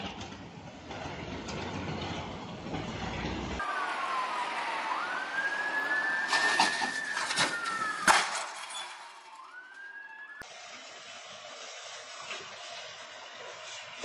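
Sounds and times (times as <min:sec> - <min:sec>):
siren wailing: 0:03.6 - 0:10.5.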